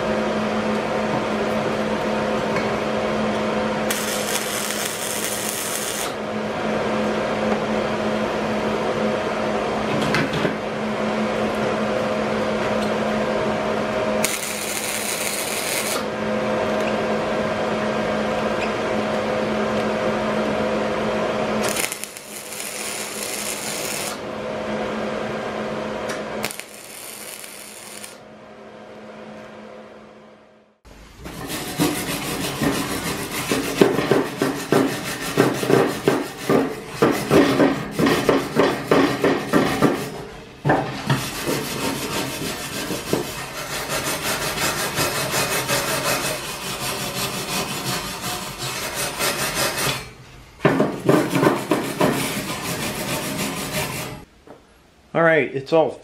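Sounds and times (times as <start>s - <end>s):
electrical hum: 0.0s - 31.4s
welder arc crackling: 3.9s - 6.2s, 14.2s - 16.1s, 21.6s - 24.2s, 26.4s - 28.2s.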